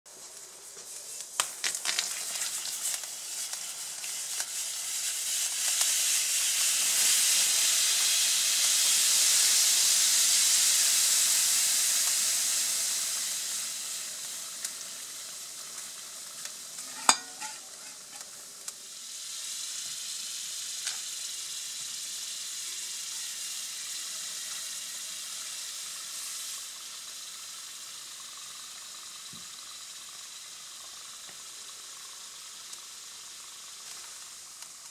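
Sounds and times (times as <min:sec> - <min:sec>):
liquid nitrogen boiling with hiss: 0:00.1 - 0:34.9
sharp crack: 0:01.2 - 0:03.6.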